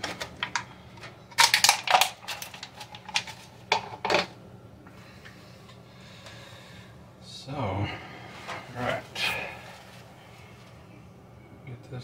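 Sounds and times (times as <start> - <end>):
plastic bottle crinkling and clicking: 0.0 - 3.9.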